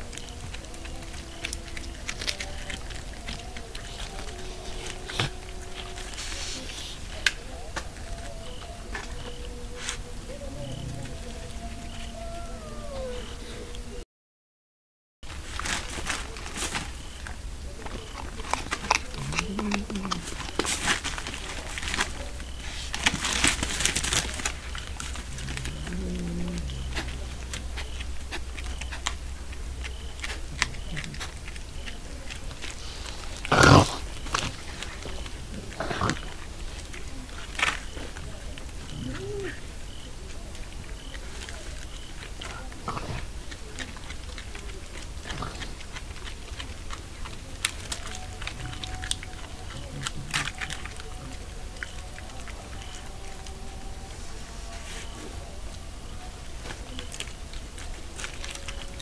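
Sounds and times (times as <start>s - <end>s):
scrapes: 0.0s - 12.4s
animals rustling among bones and litter: 0.0s - 13.9s, 15.3s - 59.0s
steady low hum: 0.0s - 14.0s, 15.3s - 59.0s
low pitched tone: 21.2s - 32.2s.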